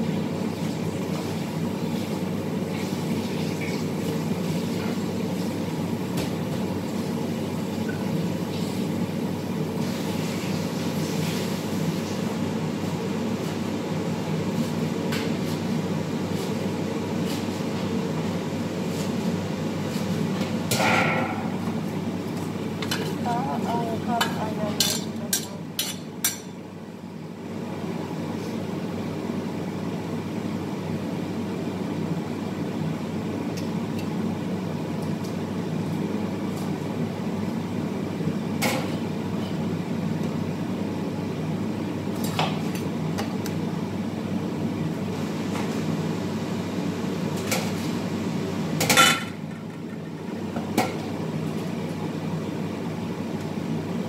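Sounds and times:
low kitchen hum: 0:00.0 - 0:54.0
metal utensils clinking on pots: 0:24.2 - 0:26.5.

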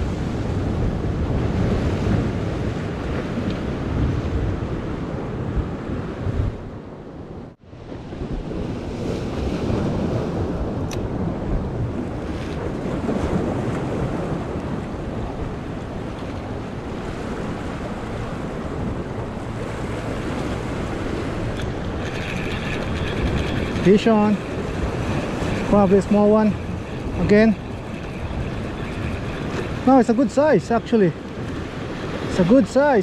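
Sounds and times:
wind buffeting microphone: 0:00.0 - 0:33.0
surf washing against rocks: 0:07.8 - 0:33.0.

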